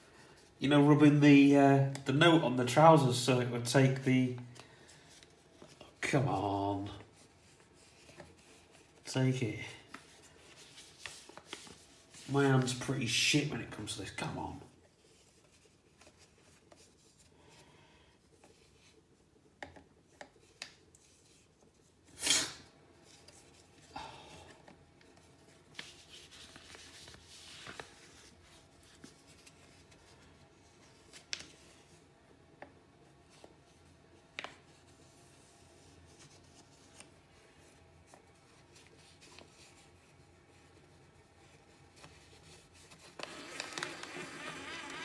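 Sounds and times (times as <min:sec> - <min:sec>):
paper banknote rustling: 0:03.8 - 0:17.5, 0:24.5 - 0:32.1, 0:33.2 - 0:45.0.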